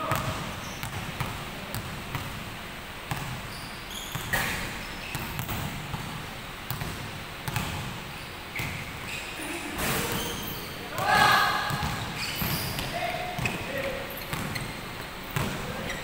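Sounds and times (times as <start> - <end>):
basketball bouncing on wood floor: 3.1 - 3.4, 4.1 - 8.0, 11.7 - 13.6
short high squeaks: 3.5 - 5.2, 8.2 - 10.8, 12.0 - 14.8.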